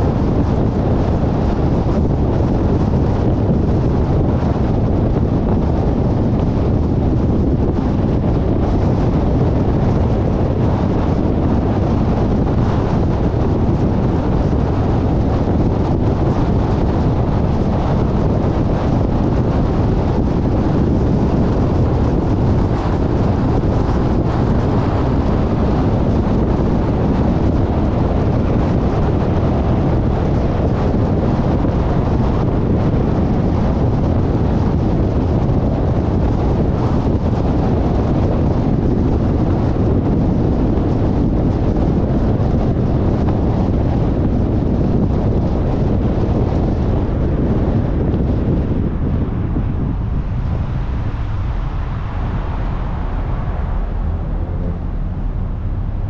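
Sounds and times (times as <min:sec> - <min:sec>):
tyre and wind road rumble: 0:00.0 - 0:56.0
wind buffeting microphone: 0:00.0 - 0:56.0.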